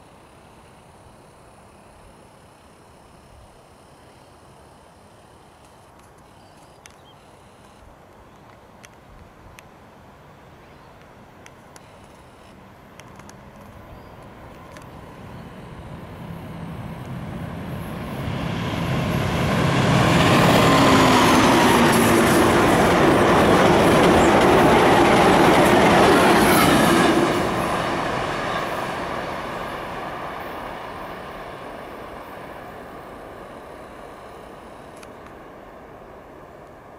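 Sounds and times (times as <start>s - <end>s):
diesel locomotive engine: 10.4s - 36.9s
train wheels running past: 13.1s - 36.9s.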